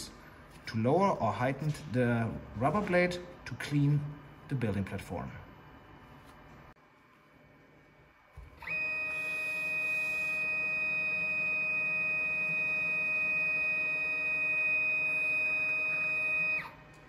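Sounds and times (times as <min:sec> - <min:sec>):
printer drive high whine: 0:08.4 - 0:17.0.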